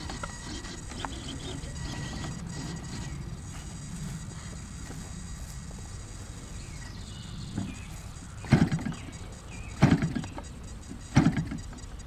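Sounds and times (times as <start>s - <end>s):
model airplane engine sputtering: 0.0s - 12.0s
propeller being flipped by hand: 8.4s - 9.1s, 9.8s - 11.8s.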